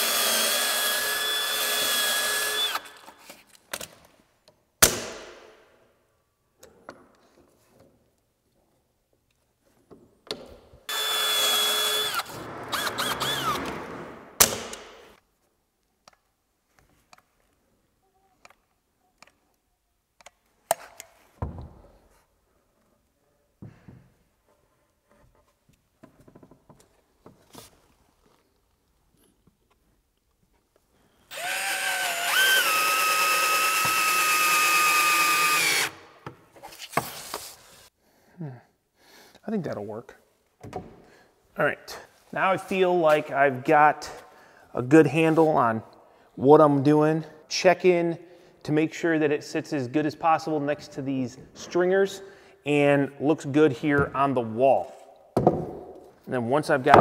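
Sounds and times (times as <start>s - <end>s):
cordless drill motor revving: 0.0s - 3.1s, 10.9s - 13.8s, 31.3s - 36.0s.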